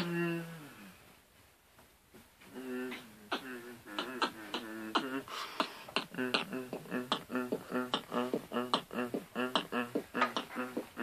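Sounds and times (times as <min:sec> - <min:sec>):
beatboxing: 0:00.0 - 0:00.7, 0:02.5 - 0:11.0
hummed tone: 0:00.0 - 0:00.9.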